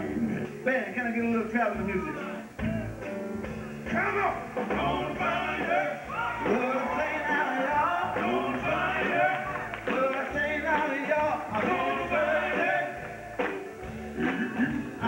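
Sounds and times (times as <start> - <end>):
live rock and roll band: 0.0 - 15.0
person singing: 4.7 - 13.2.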